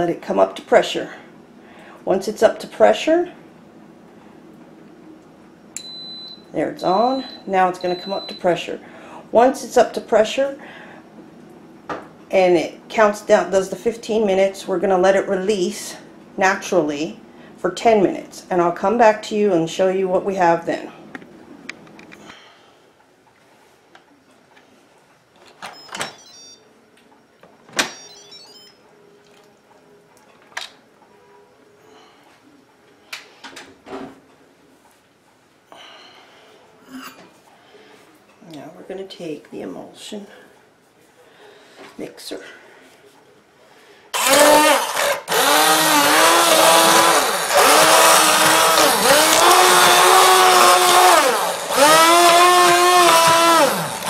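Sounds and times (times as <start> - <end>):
immersion blender motor running: 44.2 - 54.0.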